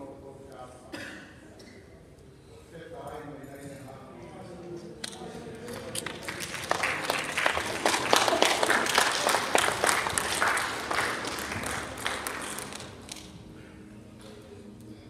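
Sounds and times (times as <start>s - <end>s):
crowd applauding: 5.3s - 13.4s.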